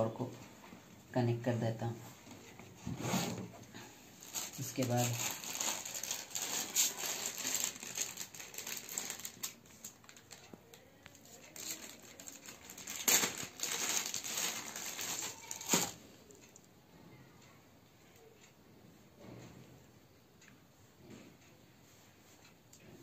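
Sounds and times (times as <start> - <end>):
plastic bag crinkling: 4.2 - 16.0.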